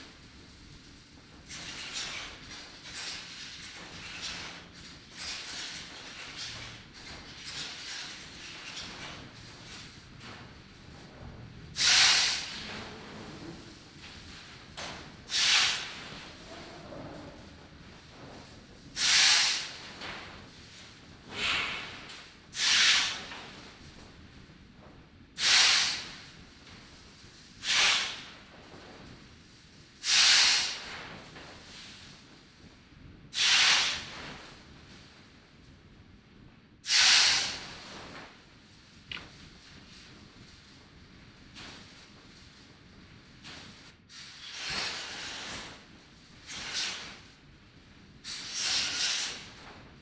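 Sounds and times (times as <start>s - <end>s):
soft swishes of hiss: 0.0s - 50.0s
loud burst of hiss: 11.7s - 23.6s, 25.4s - 26.4s, 27.6s - 28.5s, 29.9s - 31.9s, 33.3s - 34.5s, 36.8s - 38.1s, 43.4s - 47.4s, 48.2s - 49.7s.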